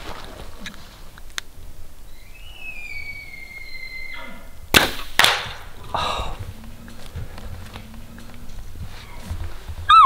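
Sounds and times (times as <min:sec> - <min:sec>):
elk bugling: 0:02.1 - 0:04.7.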